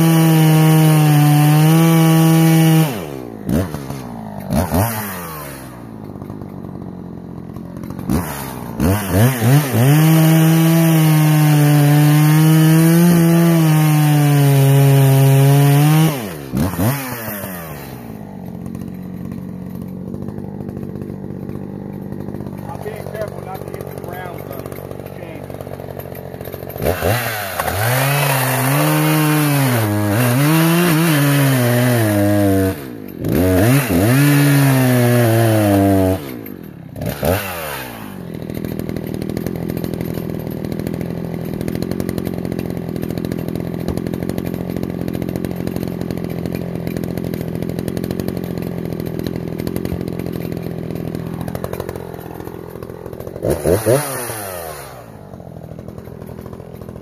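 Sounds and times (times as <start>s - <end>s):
chainsaw cutting wood: 0.0s - 57.0s
chainsaw idling: 0.0s - 57.0s.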